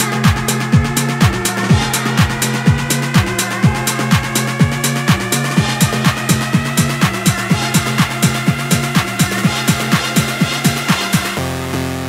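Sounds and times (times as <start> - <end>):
techno dance music: 0.0 - 12.0.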